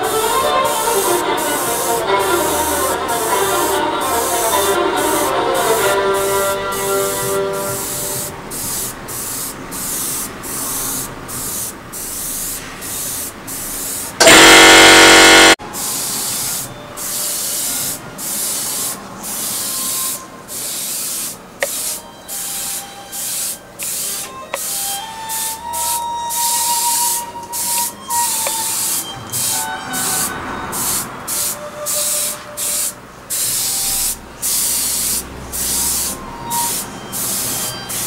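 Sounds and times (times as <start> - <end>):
faint background music: 0.0 - 9.4, 16.6 - 38.0
airbrush spraying in hissing bursts: 0.0 - 38.0
loud blast of air: 4.2 - 16.5.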